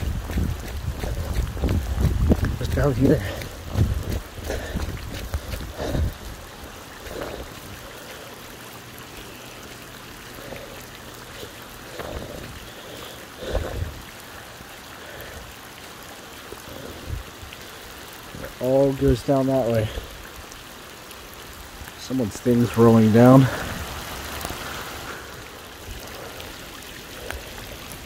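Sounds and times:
soft low thumps: 0.0 - 6.5
heavy rain falling: 0.0 - 28.0
runoff water running: 0.0 - 28.0.

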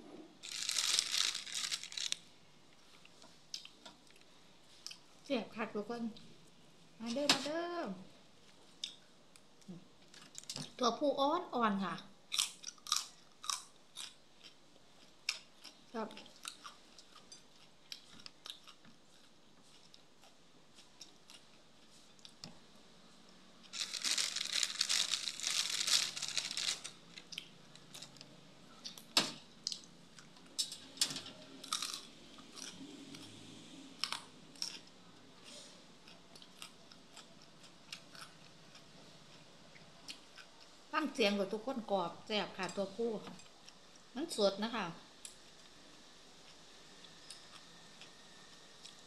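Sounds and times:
chewing and crunching raw beans: 0.4 - 2.2, 11.9 - 22.5, 23.6 - 30.5, 31.6 - 35.0, 36.0 - 40.8.

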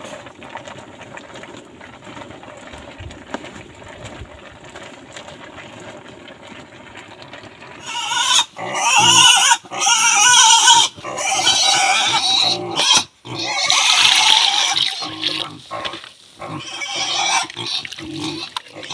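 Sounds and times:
pigs squealing: 7.8 - 18.9.

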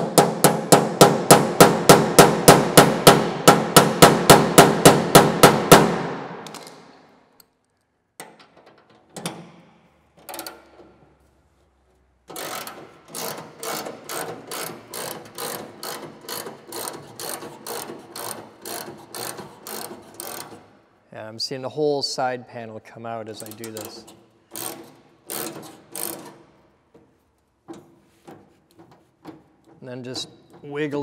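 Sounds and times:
ratchet wrench clicking: 12.3 - 20.6, 23.4 - 26.4.

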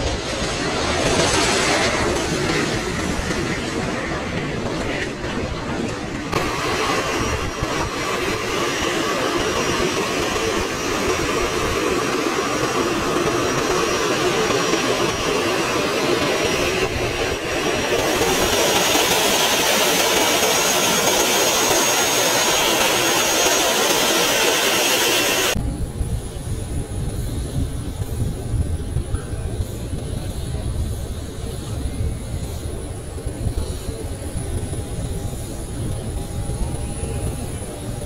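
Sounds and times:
jet engines with high whine: 0.0 - 38.0.

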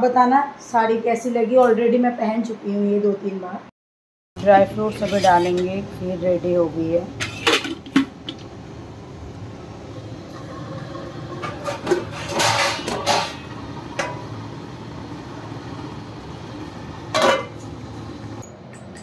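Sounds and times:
steel utensils and lids clattering: 4.9 - 5.7, 7.2 - 8.1, 11.4 - 14.1, 17.1 - 17.6.

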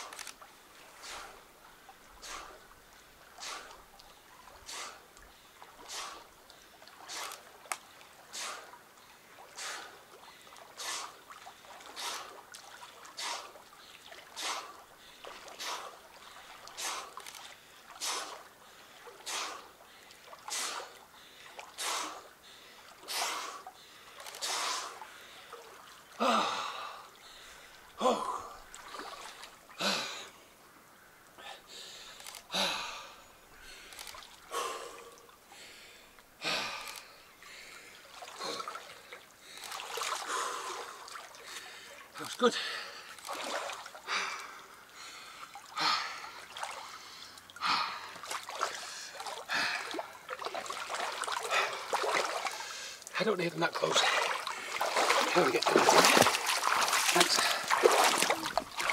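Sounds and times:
swimmer breathing hard: 1.0 - 1.5, 2.1 - 3.9, 4.5 - 7.5, 8.2 - 8.8, 9.4 - 12.4, 13.1 - 25.6, 31.4 - 43.3, 44.0 - 50.3, 51.3 - 53.1, 54.0 - 58.9
voiced gasps: 40.3 - 43.2, 44.0 - 46.3, 46.9 - 50.1.

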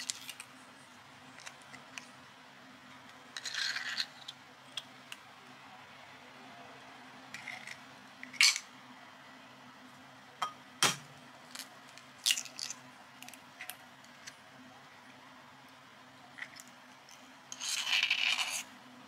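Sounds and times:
faint steady hum: 0.0 - 19.0
eggshells cracking against glass bowls: 3.4 - 4.9, 11.5 - 13.8.

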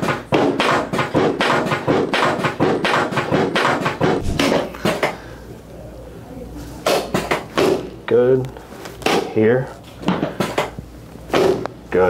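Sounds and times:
rapid sharp knocks: 0.0 - 5.1.

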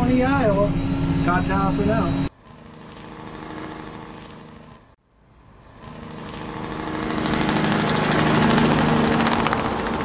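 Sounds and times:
tractor engine running: 5.8 - 10.0.

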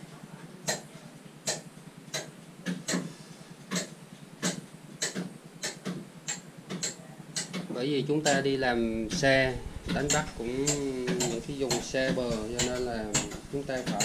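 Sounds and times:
faint steady background noise: 0.0 - 14.0
sharp clicks or knocks: 3.7 - 7.7, 9.1 - 14.0.

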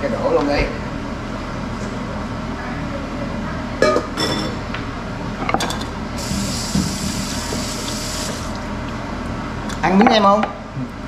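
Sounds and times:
range hood fan hum: 0.0 - 11.0
water running from tap: 6.2 - 8.7.

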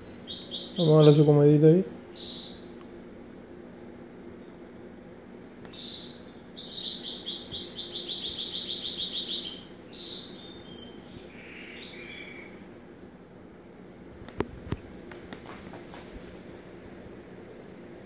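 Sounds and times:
nestling bird begging chirps: 0.0 - 1.4, 2.1 - 2.8, 4.4 - 12.6
low steady hum: 0.0 - 18.0.

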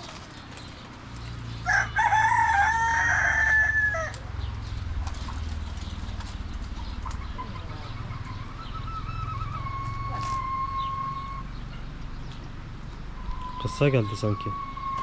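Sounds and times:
rooster crowing: 1.6 - 4.2.

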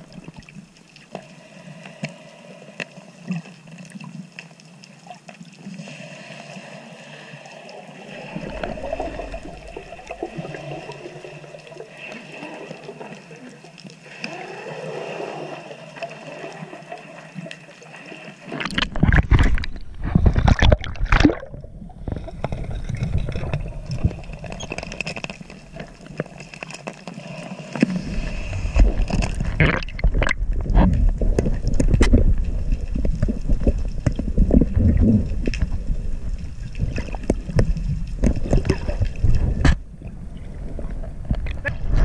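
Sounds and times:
water gurgling and rushing: 0.0 - 0.8, 5.8 - 42.0
splashing and bubbling bursts: 8.0 - 13.2, 14.0 - 42.0.

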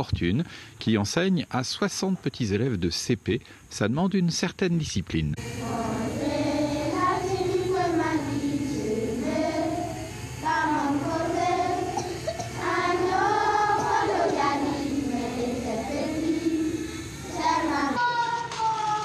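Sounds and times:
children singing in unison: 5.6 - 18.5.

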